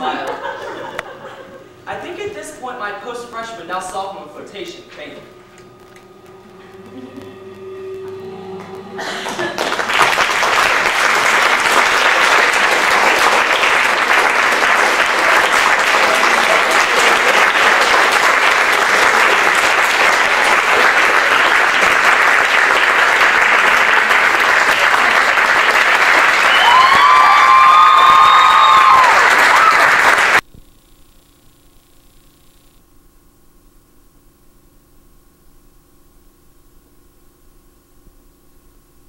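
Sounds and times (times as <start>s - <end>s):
audience applauding: 8.0s - 30.4s
person cheering: 26.2s - 30.3s.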